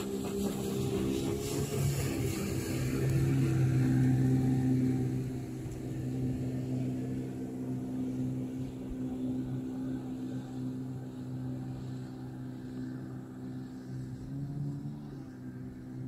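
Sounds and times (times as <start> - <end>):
motorboat engine droning: 0.0 - 16.0.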